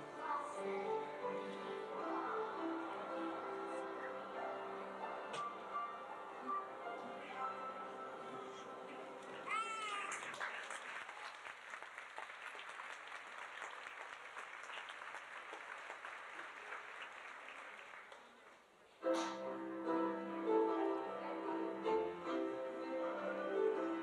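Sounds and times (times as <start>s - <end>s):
music: 0.0s - 9.8s, 19.0s - 24.0s
audience applauding: 9.2s - 18.6s.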